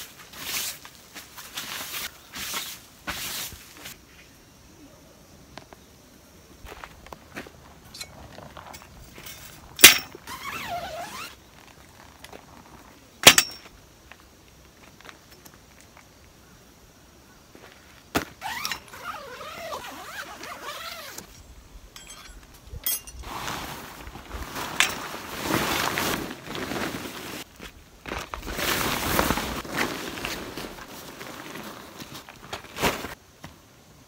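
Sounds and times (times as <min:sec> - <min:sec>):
gear rustling and clattering: 0:07.9 - 0:11.3, 0:18.4 - 0:23.3, 0:24.6 - 0:27.4.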